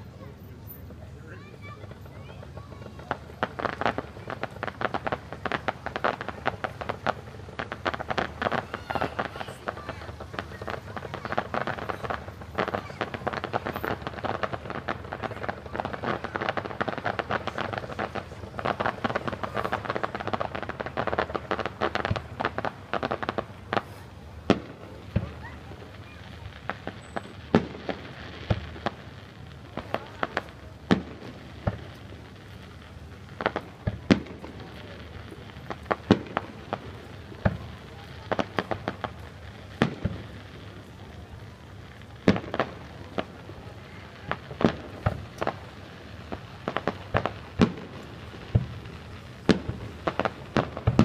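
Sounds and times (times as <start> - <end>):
fireworks crackling: 0.0 - 51.0
sharp firework bangs: 1.6 - 51.0.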